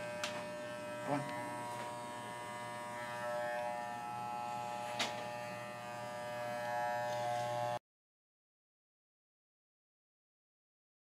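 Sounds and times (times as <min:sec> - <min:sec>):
electric clipper buzzing: 0:00.0 - 0:07.8.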